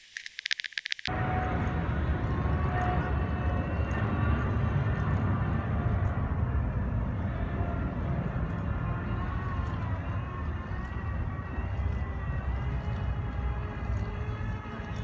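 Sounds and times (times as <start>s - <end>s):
faint wavering whining tones: 0.8s - 15.0s
low urban background rumble: 1.1s - 15.0s.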